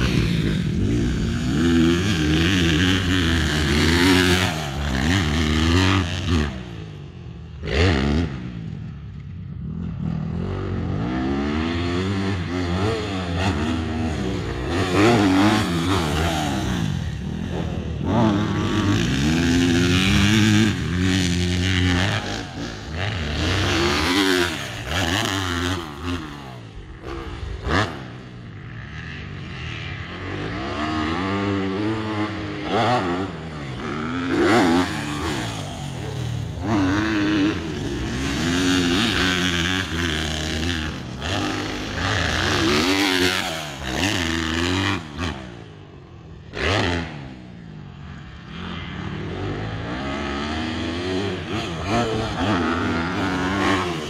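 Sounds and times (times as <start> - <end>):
motocross bike revving: 0.0 - 54.0.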